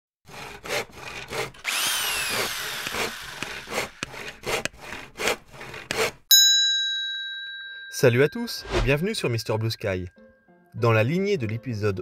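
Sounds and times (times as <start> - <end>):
rasping strokes: 0.3 - 6.3.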